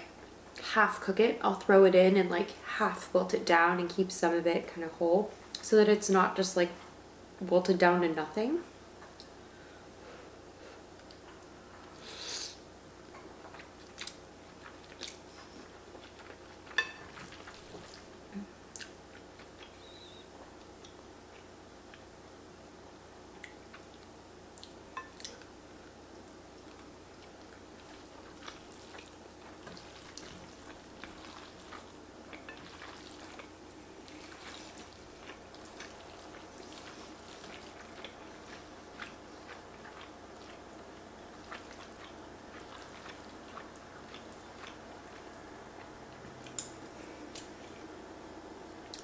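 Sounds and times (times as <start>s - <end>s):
faint steady hum: 0.0s - 49.0s
wet chewing and mouth clicks: 13.4s - 18.1s, 18.7s - 22.1s, 23.4s - 25.5s, 26.6s - 47.6s
chopsticks and spoon tapping bowl: 16.8s - 17.1s.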